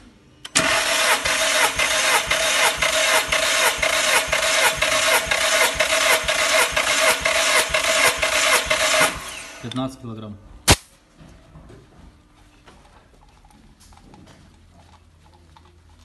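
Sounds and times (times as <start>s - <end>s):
engine cranking on starter motor: 0.5s - 9.7s.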